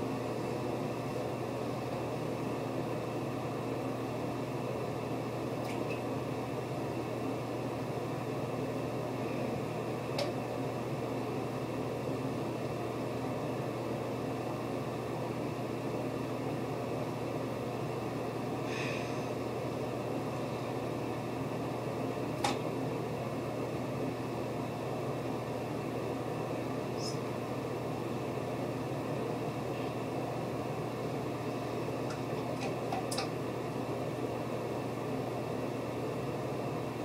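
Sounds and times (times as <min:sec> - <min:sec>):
appliance hum with hiss: 0:00.0 - 0:37.0.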